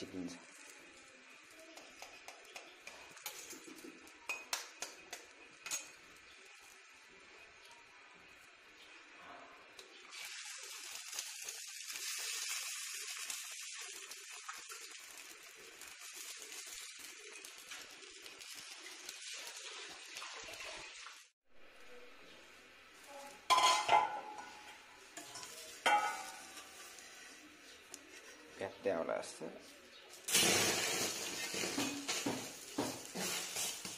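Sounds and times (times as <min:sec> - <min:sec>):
patty sizzling on a pan: 0:00.0 - 0:28.6, 0:29.6 - 0:33.9
metal spatula clattering on pan: 0:23.5 - 0:24.6, 0:25.2 - 0:26.9.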